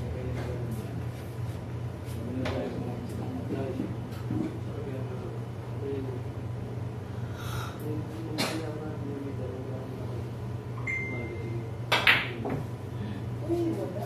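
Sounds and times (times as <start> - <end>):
steady hum: 0.0 - 14.0
pool balls clicking: 11.9 - 12.6.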